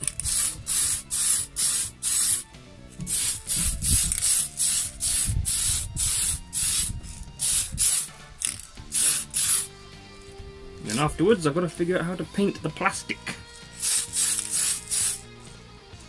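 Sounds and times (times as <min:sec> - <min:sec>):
spray paint can hissing: 0:00.0 - 0:09.7, 0:13.7 - 0:15.3.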